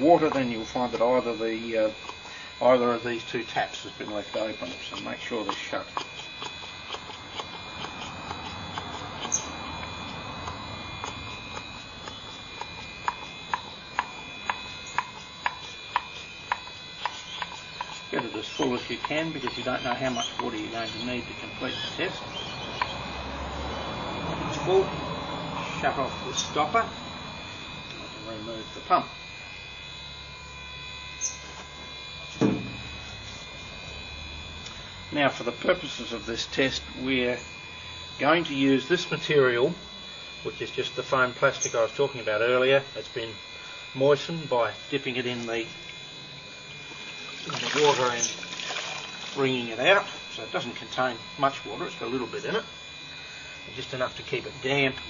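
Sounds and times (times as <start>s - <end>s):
electrical hum with whining tones: 0.0s - 55.0s
hand pump clicking: 4.0s - 20.7s, 47.3s - 49.4s
short low thump: 32.4s - 32.8s.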